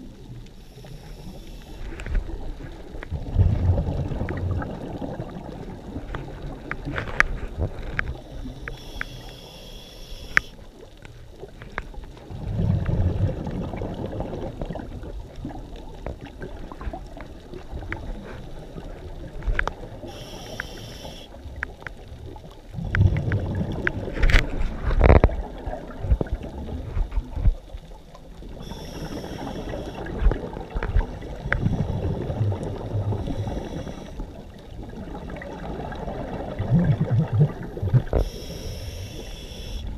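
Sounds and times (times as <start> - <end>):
exhaled air bubbles: 0.0 - 39.9
hissing regulator inhale: 0.6 - 2.0, 8.4 - 10.6, 20.0 - 21.4, 28.6 - 30.0, 33.1 - 34.2, 38.1 - 39.9.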